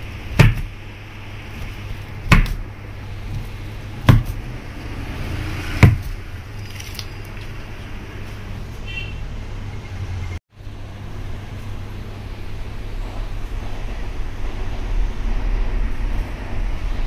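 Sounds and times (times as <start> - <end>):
knife chopping frozen dessert: 1.6 - 2.6, 3.3 - 4.5
low hum: 9.4 - 17.0.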